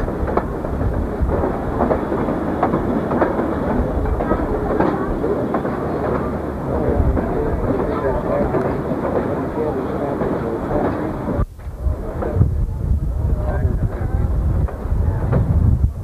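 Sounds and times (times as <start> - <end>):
wheel clicks and clanks: 0.0 - 11.4
train car rumbling on rails: 0.0 - 16.0.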